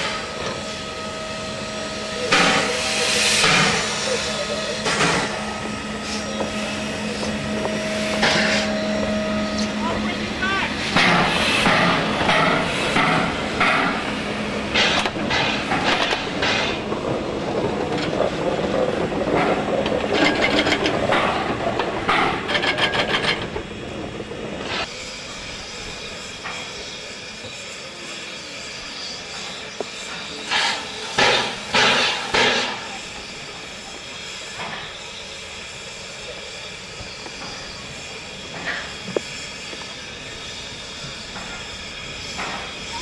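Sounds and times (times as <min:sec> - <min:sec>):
steam hiss: 0:00.0 - 0:21.6, 0:23.6 - 0:43.0
steam locomotive exhaust chuffs: 0:00.0 - 0:43.0
wheel and rail clatter: 0:11.0 - 0:24.9.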